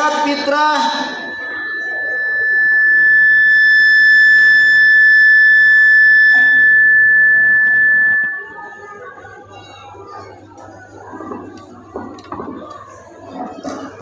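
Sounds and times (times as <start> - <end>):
microphone feedback whistle: 0.0 - 9.3.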